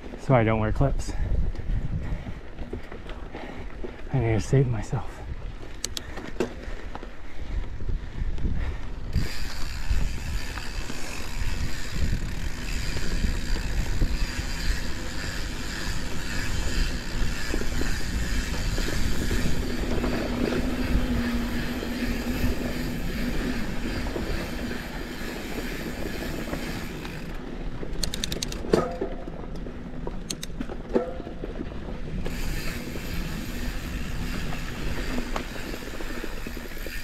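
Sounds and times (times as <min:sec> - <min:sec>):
bike tyre rumble on dirt: 0:00.0 - 0:37.0
bike frame rattling: 0:08.6 - 0:37.0.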